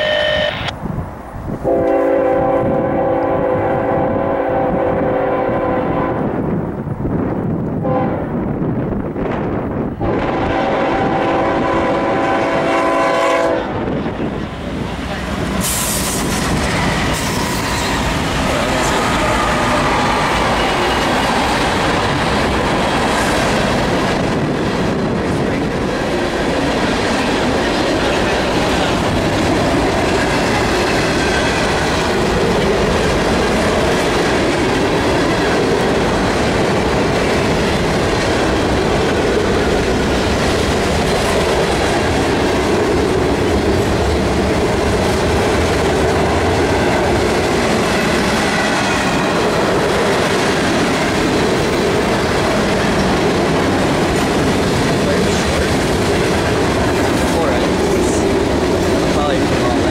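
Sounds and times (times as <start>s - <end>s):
diesel locomotives: 0.0s - 59.9s
freight train wheels clattering: 14.1s - 59.9s.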